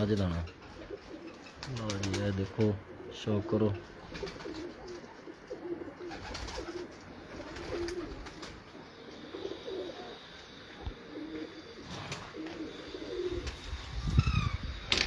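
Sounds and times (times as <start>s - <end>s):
pigeons cooing: 0.4s - 15.0s.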